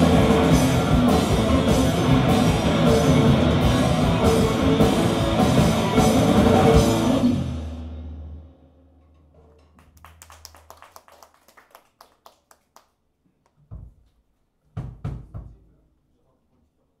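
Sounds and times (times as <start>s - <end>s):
scattered hand claps: 9.8s - 13.0s.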